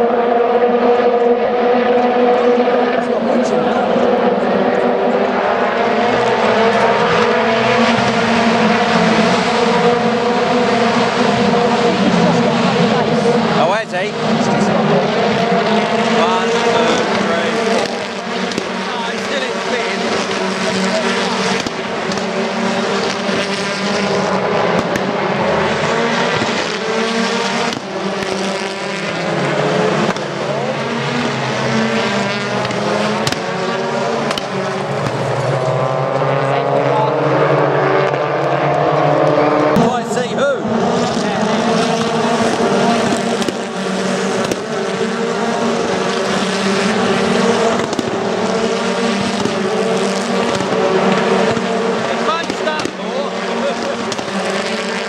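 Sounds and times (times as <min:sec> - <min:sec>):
racing car engines droning: 0:00.0 - 0:55.0
sharp cracks: 0:21.4 - 0:22.4, 0:24.7 - 0:25.1.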